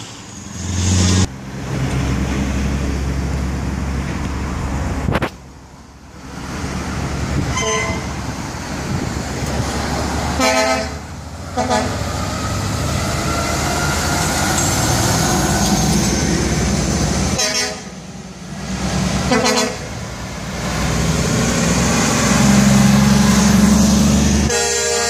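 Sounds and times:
diesel trucks driving past: 0.0 - 25.0
air horn toots: 7.5 - 8.2, 10.4 - 11.0, 11.6 - 12.0, 17.4 - 17.9, 19.3 - 19.9, 24.5 - 25.0.

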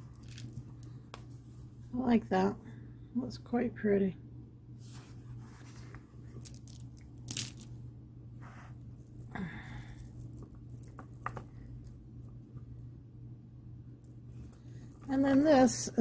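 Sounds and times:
stone beads clicking together: 6.4 - 7.7, 9.0 - 12.0.

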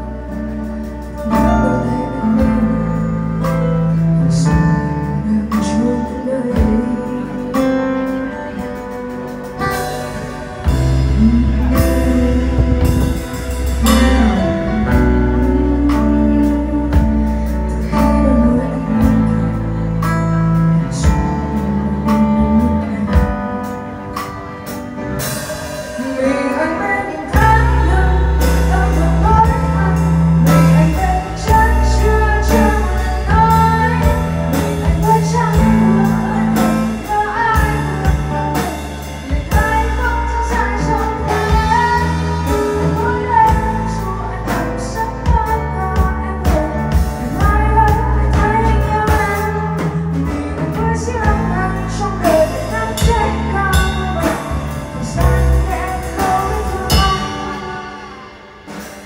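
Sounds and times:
deep bass notes: 0.0 - 59.0
guitar: 0.0 - 59.0
lead singer: 0.0 - 59.0
drum kit with cymbal crashes: 8.1 - 18.2, 20.9 - 59.0.

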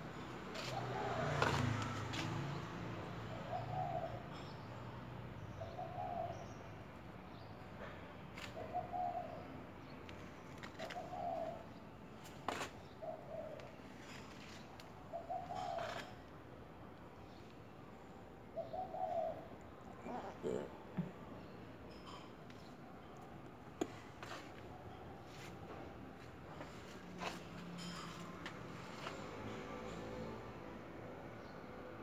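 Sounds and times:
dove cooing: 0.5 - 2.0, 3.3 - 4.6, 5.6 - 6.6, 8.6 - 9.5, 10.7 - 11.8, 15.1 - 16.2, 18.6 - 20.8.

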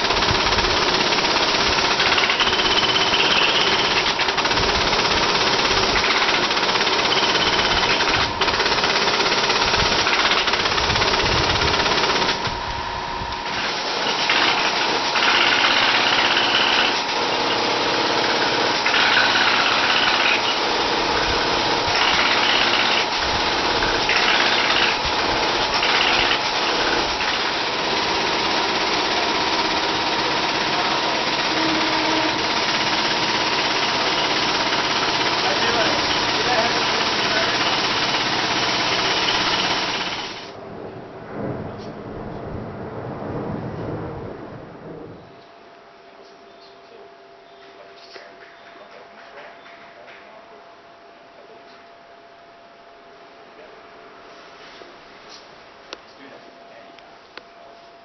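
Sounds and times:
tufting gun mechanical chatter: 0.0 - 12.5, 28.8 - 40.4.

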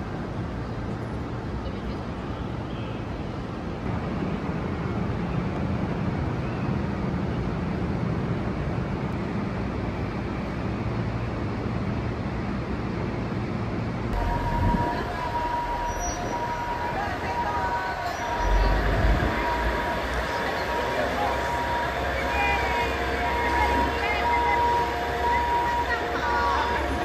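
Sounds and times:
diesel engine rumble: 7.3 - 27.0
steady high tone: 14.2 - 27.0.

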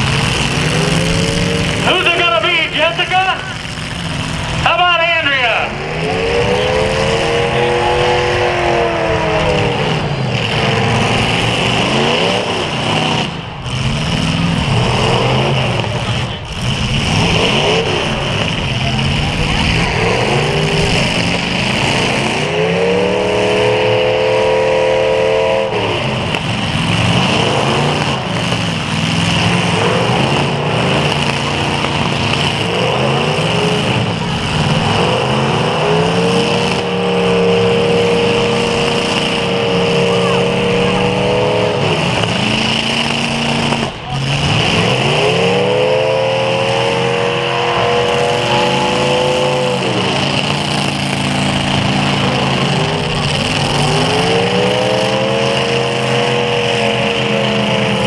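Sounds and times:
car engines revving hard: 0.0 - 58.0.

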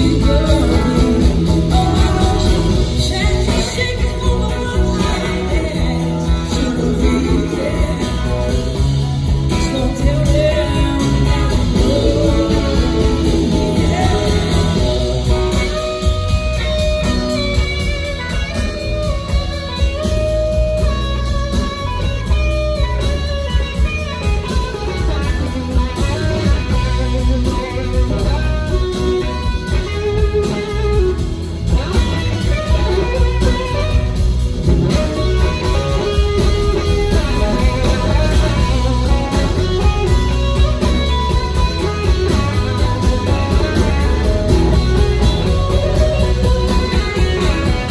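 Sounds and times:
woman singing: 0.0 - 16.9
electric guitar lead: 0.0 - 47.9
live rock band playing: 0.0 - 47.9.

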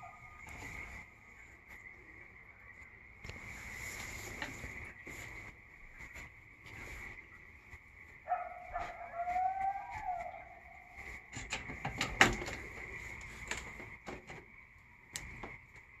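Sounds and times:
coyote howling: 0.0 - 0.6, 8.2 - 11.4
sharp clicks and knocks: 11.3 - 15.9.

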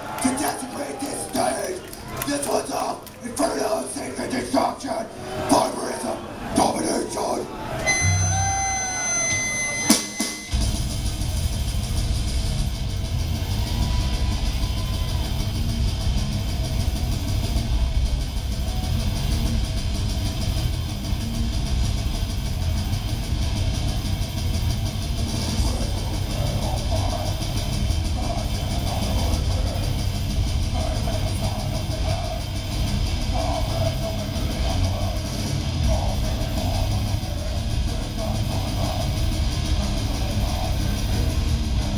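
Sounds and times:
metal band playing live: 7.9 - 41.9.

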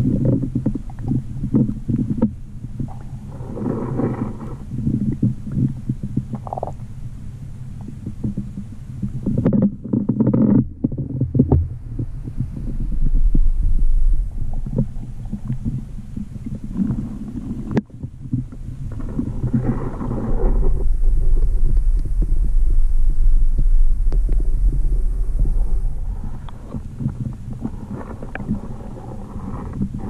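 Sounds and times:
muffled underwater rumbling: 0.0 - 30.0.

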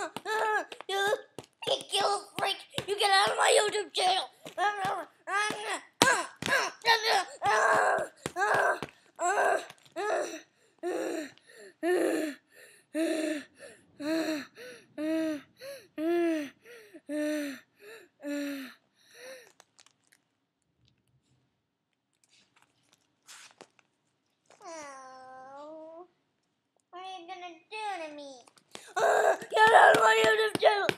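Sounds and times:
boy making short pitched cries: 0.0 - 1.3, 4.6 - 12.4, 28.9 - 30.9.

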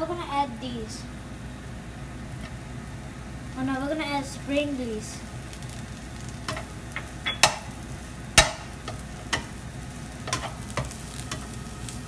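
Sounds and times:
frying sizzle: 0.0 - 12.0
spatula scraping frying pan: 8.5 - 11.9.

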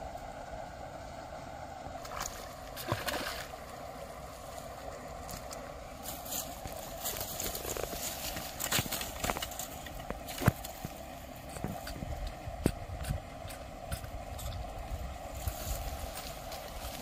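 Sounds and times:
knocks and rustles handling fish: 6.1 - 11.0.

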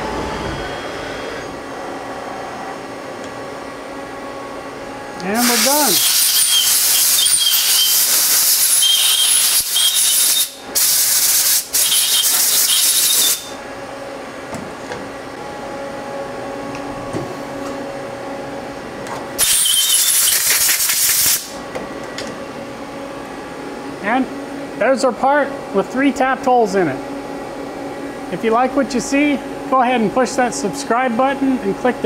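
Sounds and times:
machine hum: 0.0 - 9.8, 11.6 - 20.3
compressed air blow gun hissing: 5.4 - 13.4.

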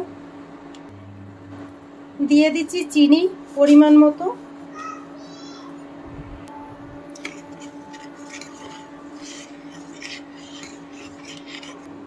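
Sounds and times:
low steady hum: 0.0 - 4.6, 5.8 - 12.0
spoon stirring milk in metal pot: 7.1 - 12.0.

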